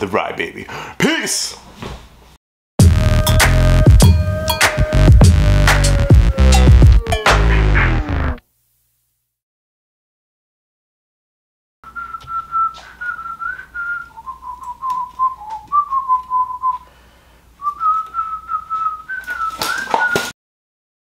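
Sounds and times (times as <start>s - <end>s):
person whistling: 4.0s - 7.0s, 11.9s - 16.9s, 17.6s - 20.3s.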